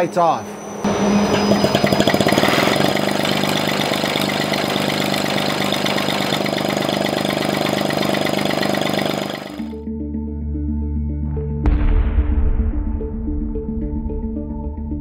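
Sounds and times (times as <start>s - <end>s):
rotary engine firing pulses: 0.6s - 9.8s.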